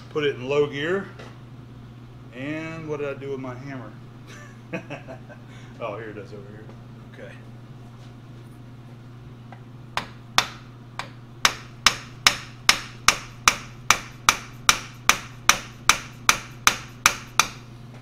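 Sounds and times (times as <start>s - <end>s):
hammer striking metal spanner: 11.4s - 17.6s.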